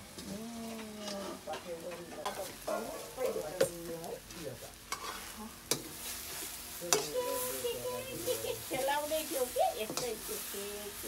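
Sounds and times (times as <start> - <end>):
frying sizzle: 0.0 - 11.0
ladle scraping a wok: 4.8 - 11.0.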